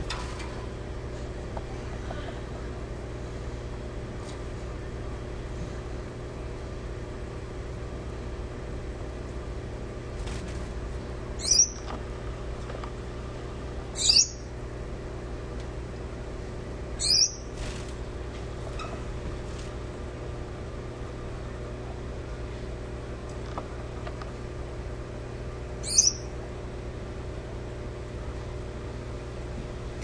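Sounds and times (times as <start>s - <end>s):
steady low hum: 0.0s - 30.0s
finch high downward chirps: 11.4s - 11.8s, 14.0s - 14.4s, 17.0s - 17.4s, 25.8s - 26.2s.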